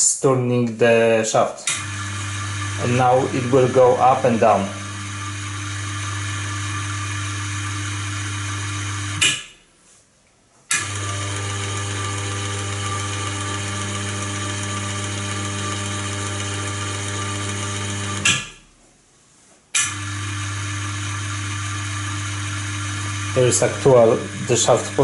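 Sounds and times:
motor starting click: 1.6 - 2.0, 10.7 - 18.6, 19.8 - 25.0
electric motor humming: 1.7 - 9.3, 10.7 - 18.6, 19.8 - 25.0.

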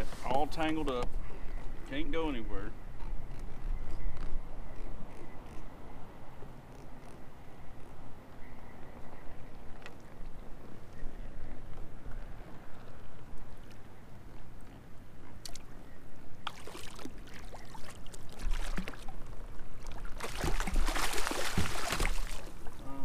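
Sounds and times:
water splashing: 16.4 - 22.9.

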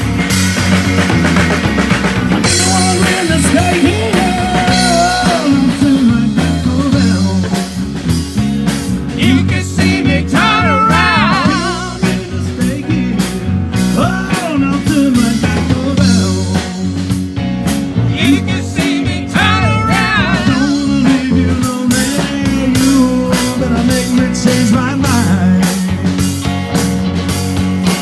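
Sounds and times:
drums and cymbals: 0.0 - 28.0
electric guitar: 0.0 - 28.0
person singing: 2.5 - 7.8, 9.1 - 17.0, 18.0 - 26.0.

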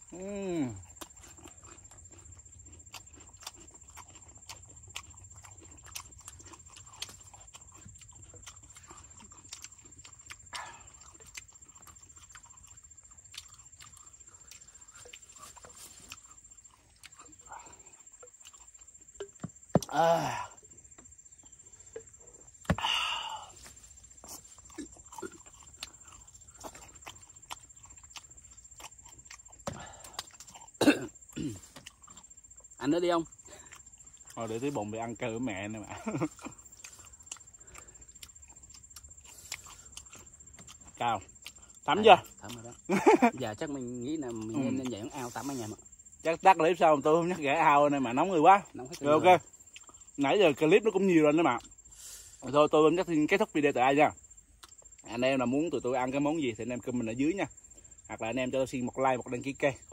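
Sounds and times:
mouth clicks and smacks chewing: 0.8 - 19.9, 23.7 - 34.7, 35.7 - 43.0, 48.8 - 50.2, 54.3 - 55.1.

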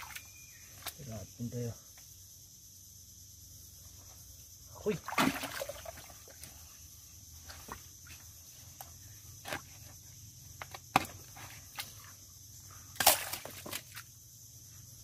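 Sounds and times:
high insect hum: 0.0 - 15.0
digging in wet mud: 12.9 - 14.1.

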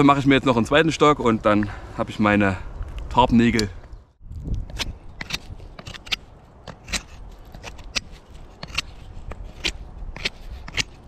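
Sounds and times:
knife shaving wood: 4.7 - 11.0.

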